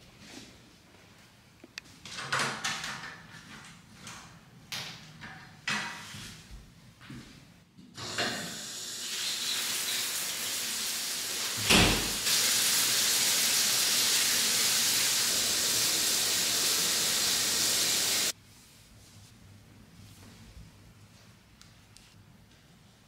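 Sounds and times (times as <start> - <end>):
shower water spraying: 8.0 - 18.4.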